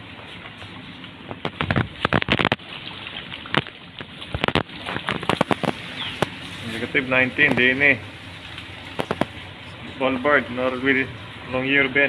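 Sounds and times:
water noise: 0:00.0 - 0:12.0
ice knocking against boat hull: 0:08.9 - 0:09.4.

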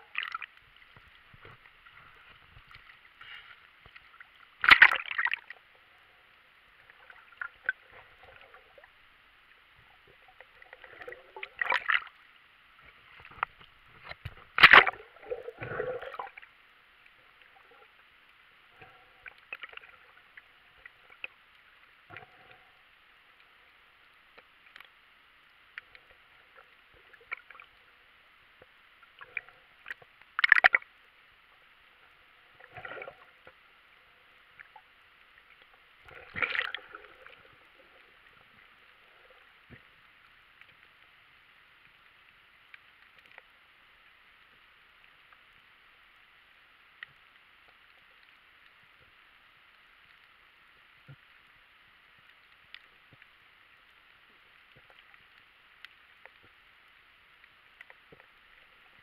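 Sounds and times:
muffled water sloshing and gurgling: 0:00.0 - 0:44.0.

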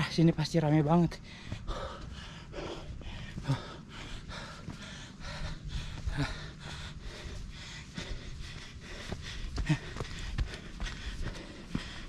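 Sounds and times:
person breathing hard: 0:01.2 - 0:12.0.

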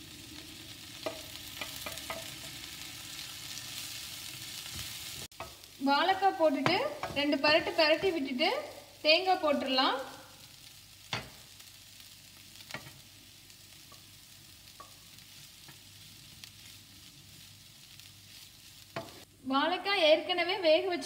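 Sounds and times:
faint frying sizzle: 0:00.0 - 0:21.0
wooden spatula stirring in pan: 0:00.4 - 0:08.3, 0:12.6 - 0:19.2
spatula knocking against pan: 0:01.0 - 0:02.6.

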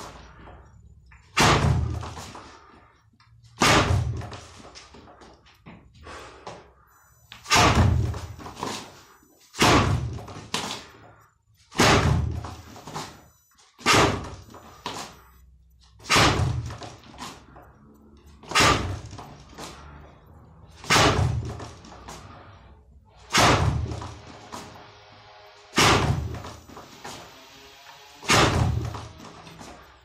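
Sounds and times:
punches thudding on wooden board: 0:01.4 - 0:02.2, 0:03.6 - 0:04.4, 0:16.1 - 0:16.8, 0:20.8 - 0:21.6.

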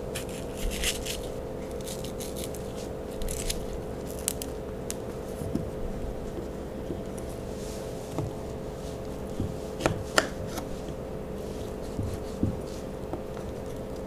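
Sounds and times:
faint hum: 0:00.0 - 0:14.0.

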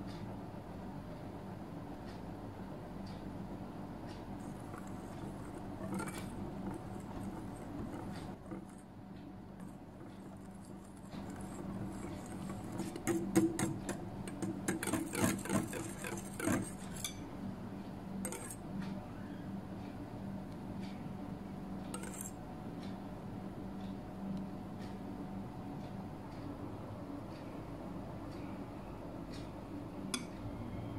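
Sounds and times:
steady low hum: 0:00.0 - 0:30.9
whisk clicking against glass bowl: 0:04.4 - 0:08.9, 0:09.5 - 0:17.2, 0:18.2 - 0:18.6, 0:21.9 - 0:22.4.

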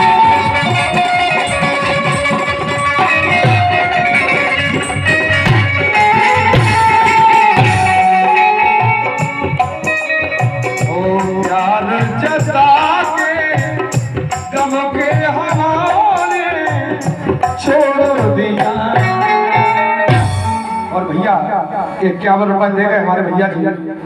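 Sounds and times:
drum beat: 0:00.0 - 0:20.6
rattle-like percussion: 0:00.0 - 0:20.8
harmonium: 0:00.0 - 0:24.0
man singing: 0:10.6 - 0:20.2.

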